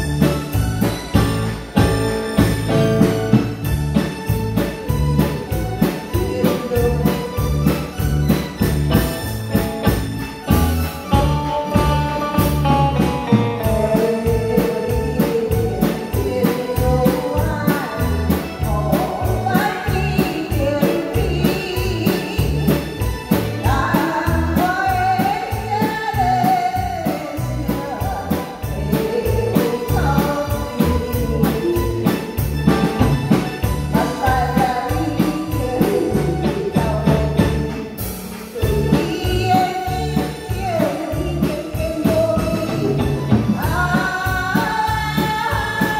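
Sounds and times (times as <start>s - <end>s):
drums keeping a beat: 0.0s - 45.9s
live band playing: 0.0s - 45.9s
woman singing a pop ballad: 6.1s - 7.9s, 11.2s - 33.0s, 33.9s - 45.9s.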